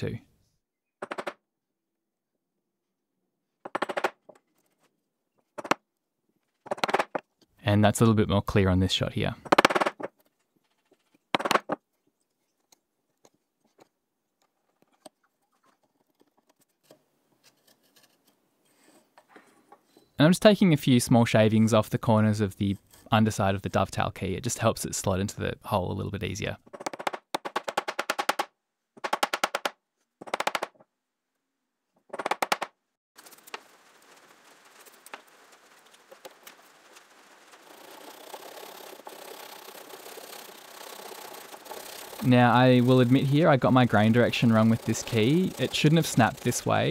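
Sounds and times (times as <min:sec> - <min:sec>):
rapid tapping: 0:26.7 - 0:30.8
chisel cutting wood crackling: 0:33.2 - 0:46.9
pull saw sawing wood: 0:37.6 - 0:46.9
chisel blade scraping ticks: 0:40.8 - 0:46.9.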